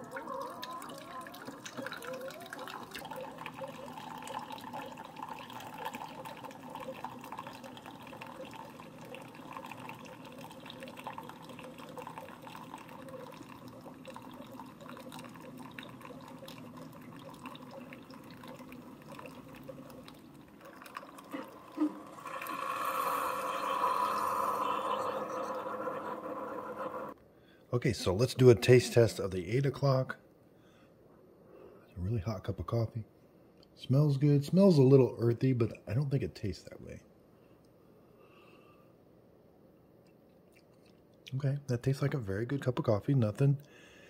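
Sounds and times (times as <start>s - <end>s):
coffee maker pumps running: 0.0s - 27.2s
coffee streaming into mugs: 0.0s - 27.2s.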